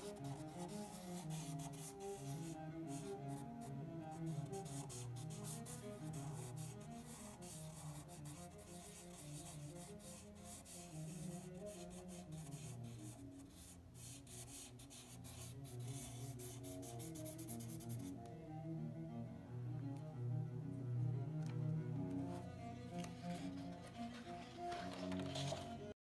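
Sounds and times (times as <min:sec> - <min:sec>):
marker scratching on paper: 0:00.0 - 0:18.1
soft bowed string music: 0:00.0 - 0:26.0.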